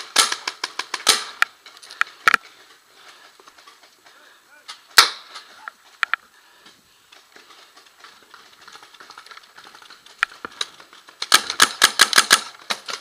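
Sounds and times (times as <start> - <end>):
paintball markers firing: 0.0 - 2.4, 10.2 - 13.0.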